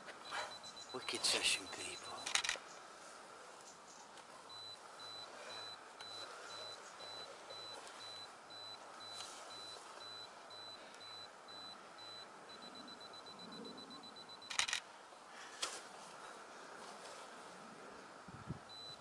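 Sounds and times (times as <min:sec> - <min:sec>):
camera self-timer beeping: 0:00.1 - 0:02.6, 0:04.5 - 0:14.8, 0:18.7 - 0:19.0
camera shutter clicks: 0:02.2 - 0:02.6, 0:14.4 - 0:14.8.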